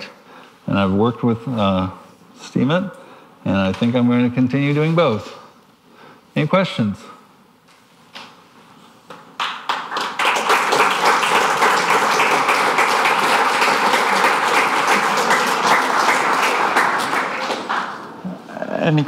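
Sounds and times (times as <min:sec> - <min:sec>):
audience applauding: 0:09.4 - 0:19.0.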